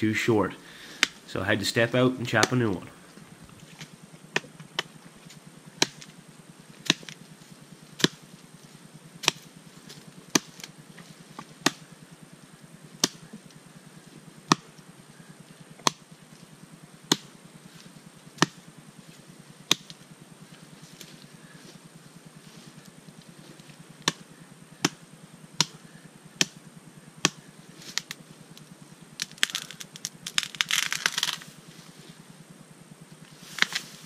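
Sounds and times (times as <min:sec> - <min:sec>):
axe chopping wood: 0:04.3 - 0:06.2, 0:06.8 - 0:07.2, 0:08.0 - 0:08.2, 0:09.2 - 0:09.5, 0:10.3 - 0:10.7, 0:11.4 - 0:11.9, 0:13.0 - 0:13.3, 0:14.5 - 0:14.7, 0:15.8 - 0:16.0, 0:17.1 - 0:17.4, 0:18.4 - 0:18.6, 0:19.7 - 0:20.0, 0:24.0 - 0:25.0, 0:25.6 - 0:25.8, 0:26.4 - 0:26.6, 0:27.2 - 0:28.2.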